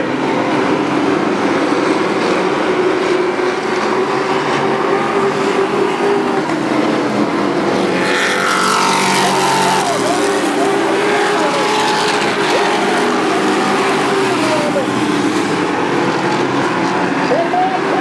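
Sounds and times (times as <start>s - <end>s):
racing truck engines: 0.0s - 18.0s
truck passing by: 3.5s - 17.4s.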